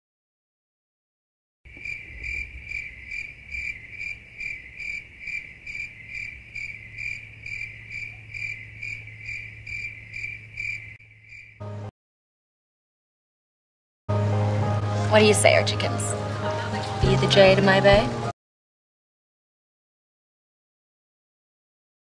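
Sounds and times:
crickets chirping: 1.7s - 11.6s.

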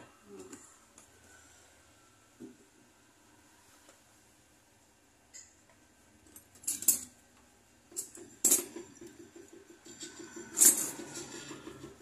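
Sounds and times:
metal tools clinking: 6.3s - 7.1s.

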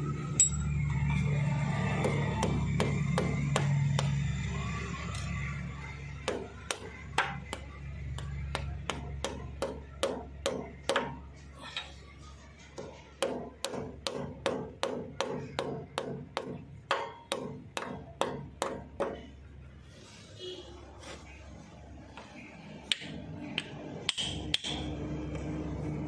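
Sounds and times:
hammer striking metal: 0.3s - 0.9s, 1.9s - 4.5s, 6.2s - 11.2s, 12.8s - 19.2s.

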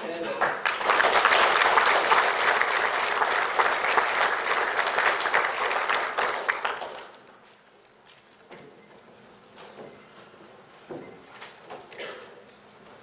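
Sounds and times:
audience applauding: 0.2s - 7.3s.

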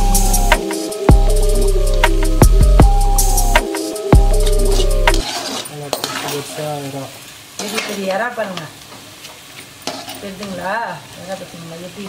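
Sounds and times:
wavering tones: 0.0s - 5.3s
food sizzling in oil: 0.0s - 12.0s
metal spoon scraping a pan: 4.5s - 10.7s.

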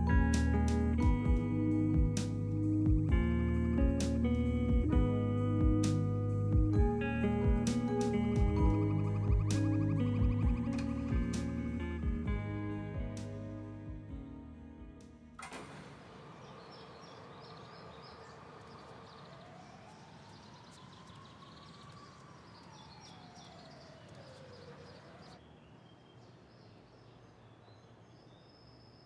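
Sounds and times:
distant rising and falling tone: 0.0s - 28.1s
high chirping: 5.4s - 13.4s.

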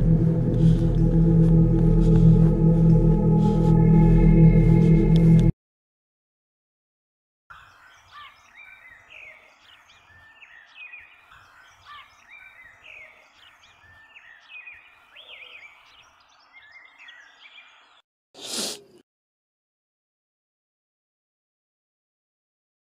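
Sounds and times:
small birds chirping: 7.5s - 18.0s.

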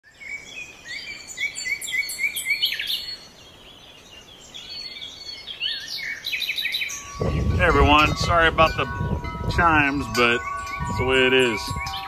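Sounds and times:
songbirds singing: 0.0s - 12.0s.

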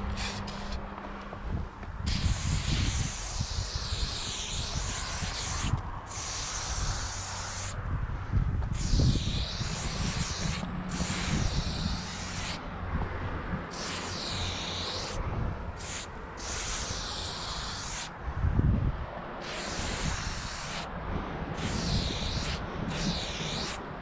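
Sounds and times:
spray paint can hissing: 0.0s - 0.8s, 2.1s - 7.8s, 8.7s - 12.6s, 13.7s - 15.2s, 15.8s - 18.1s, 19.4s - 20.9s, 21.6s - 23.8s.

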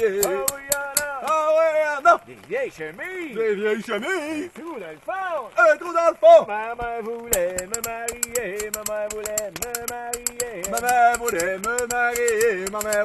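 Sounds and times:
rattling percussion beat: 0.0s - 1.4s, 7.3s - 13.0s
men singing folk song: 0.0s - 13.0s.

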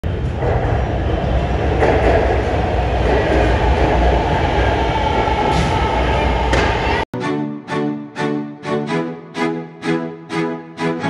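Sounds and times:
train wheels rumbling on rail: 0.0s - 7.1s
clacks: 1.7s - 4.4s.

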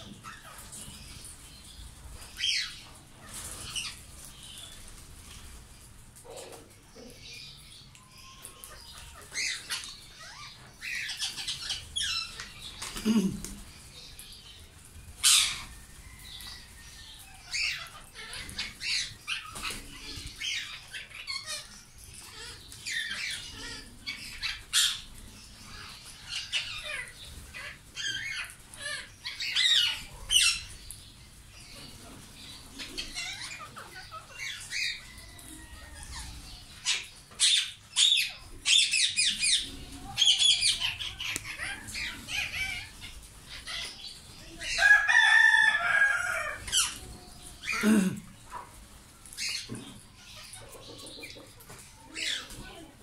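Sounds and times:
parakeets squawking: 36.1s - 44.1s.

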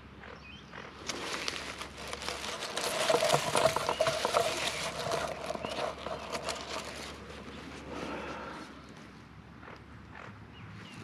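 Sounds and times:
dry grass rustling: 1.0s - 8.8s.

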